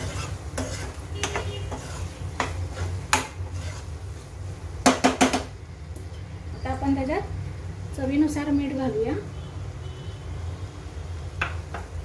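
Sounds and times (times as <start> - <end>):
spatula knocking against pan: 0.6 - 3.4, 4.8 - 5.5.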